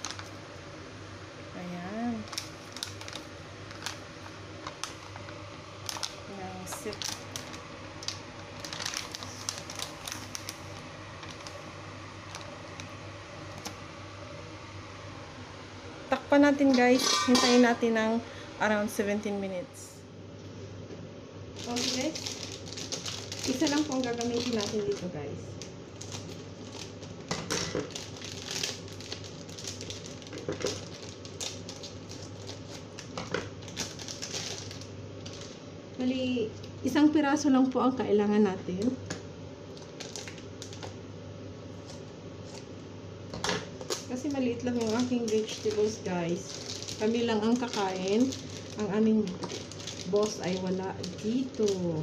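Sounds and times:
plastic bag crinkling: 0:00.0 - 0:00.4, 0:02.1 - 0:13.7, 0:21.5 - 0:35.6, 0:39.7 - 0:41.0, 0:43.4 - 0:52.0
low steady hum: 0:00.0 - 0:52.0.

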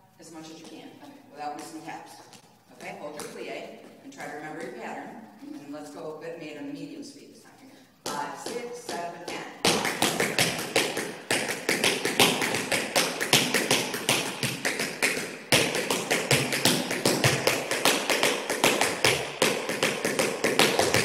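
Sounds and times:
tap shoes on floor: 0:08.0 - 0:21.0.

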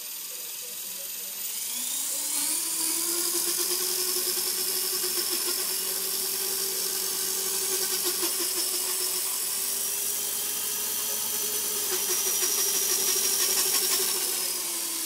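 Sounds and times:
helicopter rotor drone: 0:00.0 - 0:15.0
high motor whine: 0:00.0 - 0:15.0.

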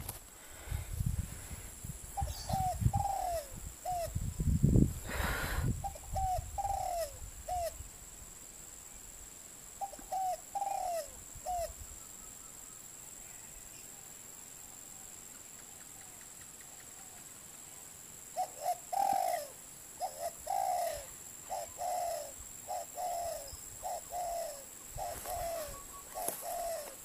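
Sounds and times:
dove cooing: 0:02.2 - 0:04.1, 0:05.8 - 0:07.8, 0:09.8 - 0:11.8, 0:18.4 - 0:27.0.

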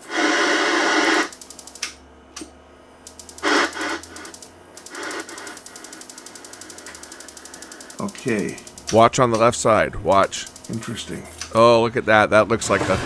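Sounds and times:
rapid electrical ticking: 0:00.4 - 0:01.9, 0:02.9 - 0:11.7.

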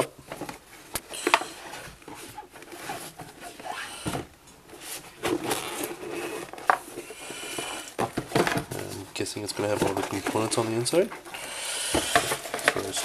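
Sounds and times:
cardboard box rustling and scraping: 0:01.4 - 0:03.8, 0:04.7 - 0:11.2.

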